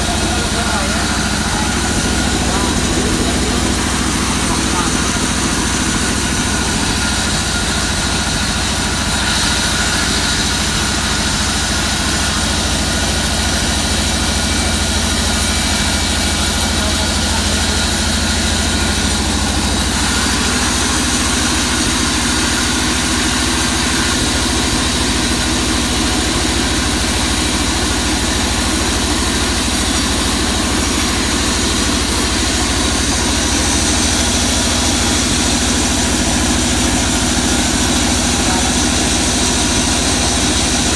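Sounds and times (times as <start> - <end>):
band saw cutting log: 0.0 - 40.9.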